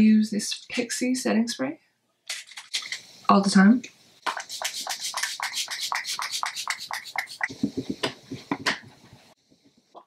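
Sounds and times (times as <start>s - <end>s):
spray bottle spritzing: 4.2s - 8.2s
cardboard fanning air: 4.3s - 9.9s.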